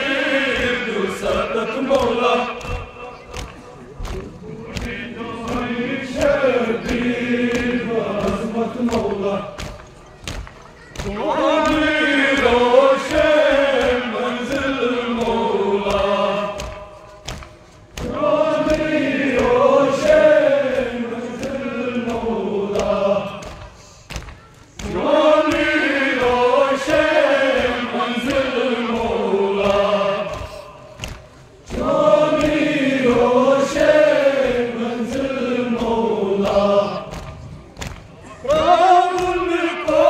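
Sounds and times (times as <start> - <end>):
men chanting a lament: 0.0 - 9.9, 10.8 - 17.2, 18.0 - 24.0, 24.8 - 37.6, 38.2 - 40.0.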